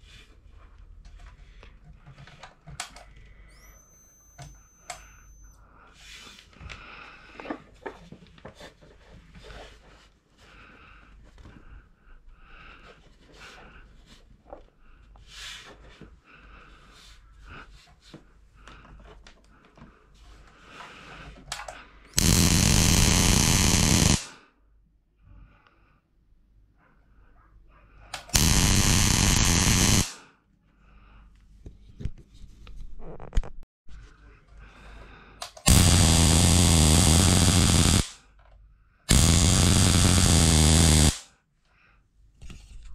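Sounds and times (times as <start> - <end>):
tesla coil buzzing: 22.2 - 24.3, 28.3 - 30.2, 35.6 - 38.2, 39.1 - 41.2.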